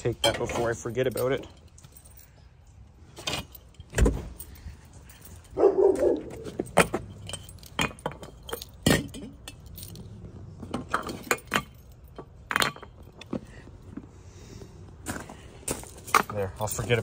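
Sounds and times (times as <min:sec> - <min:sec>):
keys jangling: 0:00.8 - 0:13.2.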